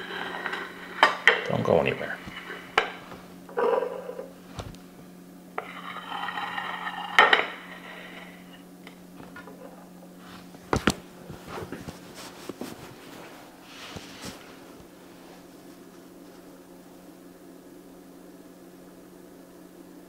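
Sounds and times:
plate scraping: 0:00.0 - 0:10.5
steady low hum: 0:00.0 - 0:20.0.

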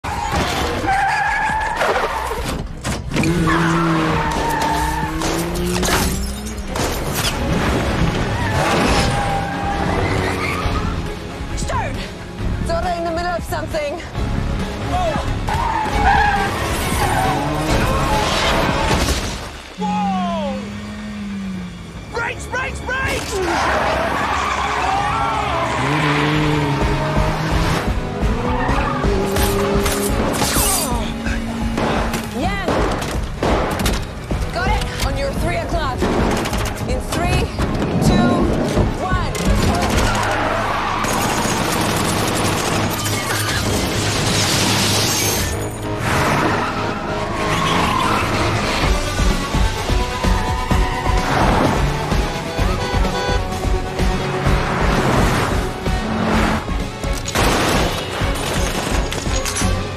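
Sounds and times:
tyres squealing: 0:00.0 - 0:07.4, 0:08.2 - 0:11.1, 0:15.5 - 0:18.9, 0:37.4 - 0:44.1, 0:44.8 - 0:53.6
vehicle noise: 0:00.0 - 0:59.9
dramatic music: 0:00.1 - 0:59.9.

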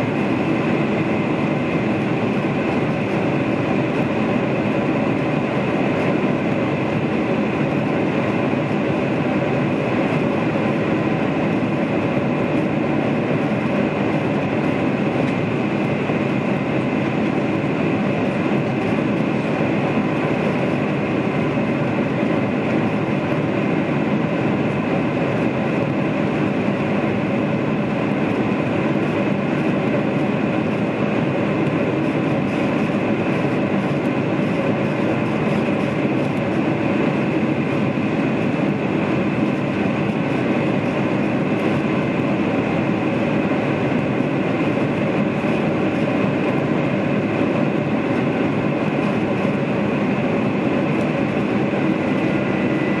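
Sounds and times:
jet engines at high power: 0:00.0 - 0:53.0.

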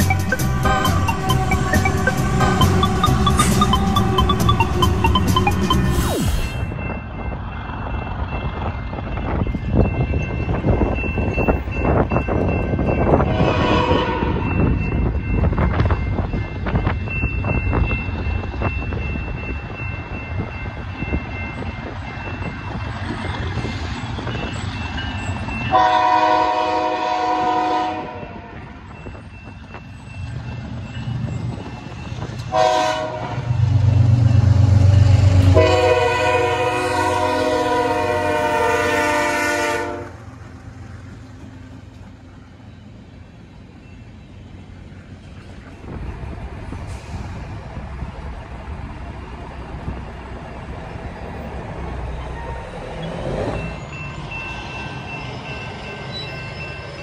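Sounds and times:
locomotive engine rumbling: 0:00.0 - 0:57.0
locomotive air horn blasts: 0:13.2 - 0:14.5, 0:25.7 - 0:28.6, 0:32.5 - 0:33.7, 0:34.7 - 0:40.2.

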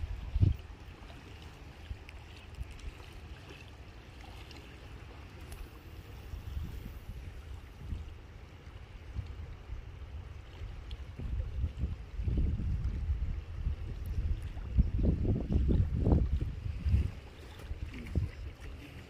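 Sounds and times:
wind buffeting microphone: 0:00.0 - 0:00.8, 0:05.5 - 0:08.3, 0:09.0 - 0:19.0.

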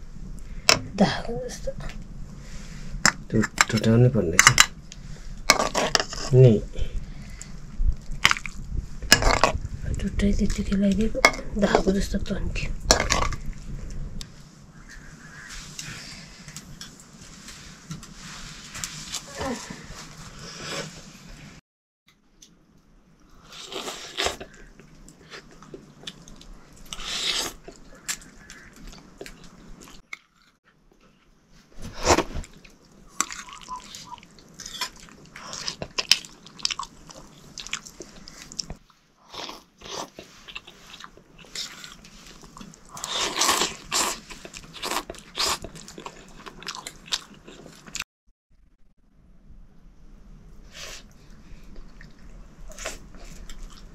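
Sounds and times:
person chewing and crunching: 0:23.4 - 0:31.3, 0:32.0 - 0:48.0, 0:51.6 - 0:53.9.

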